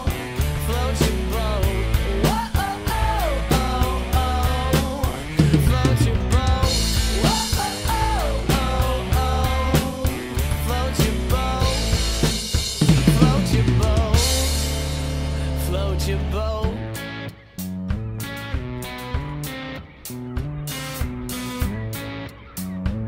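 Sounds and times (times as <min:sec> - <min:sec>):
recorded pop song with vocals: 0:00.0 - 0:17.6
drum kit playing: 0:00.0 - 0:23.0.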